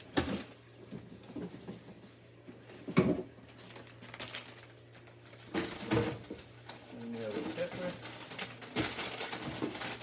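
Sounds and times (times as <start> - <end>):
groceries knocking and rustling: 0.0 - 10.0.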